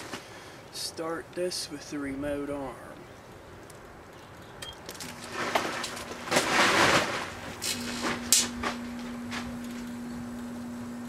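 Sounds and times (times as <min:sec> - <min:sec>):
rustling: 0:03.4 - 0:10.3
microwave humming: 0:06.0 - 0:11.0.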